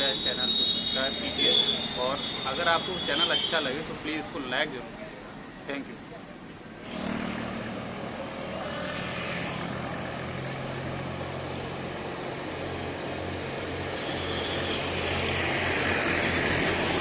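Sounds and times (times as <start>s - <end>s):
passing motorcycles and trucks: 6.7s - 17.0s.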